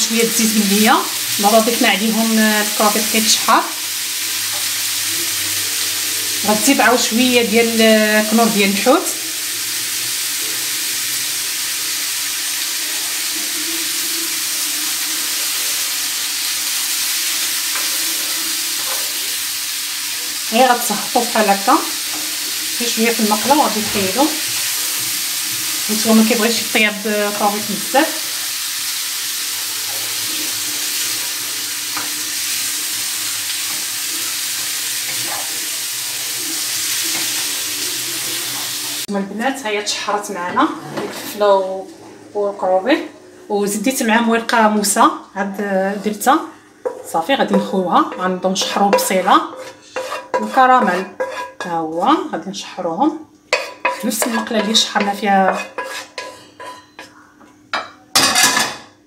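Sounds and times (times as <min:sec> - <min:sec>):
shrimp sizzling in frying pan: 0:00.0 - 0:41.4, 0:46.0 - 0:52.3, 0:53.3 - 0:57.1
wooden spatula stirring: 0:46.8 - 0:51.7, 0:53.5 - 0:57.1.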